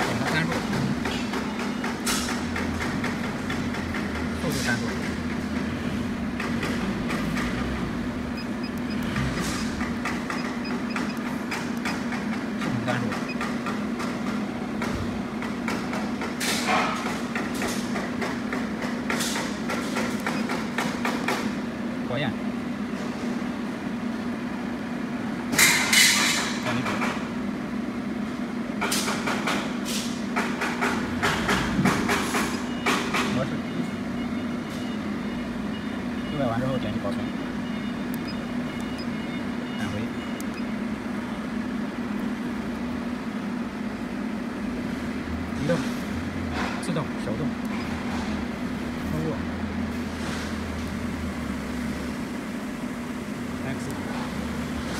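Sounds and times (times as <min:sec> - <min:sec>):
low machine hum: 0:00.0 - 0:16.4, 0:30.8 - 0:54.9.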